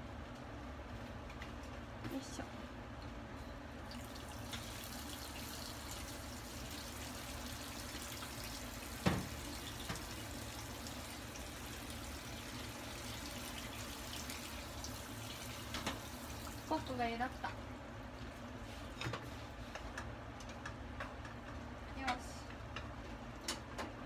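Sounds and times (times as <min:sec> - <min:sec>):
water boiling and bubbling: 0:03.8 - 0:17.6.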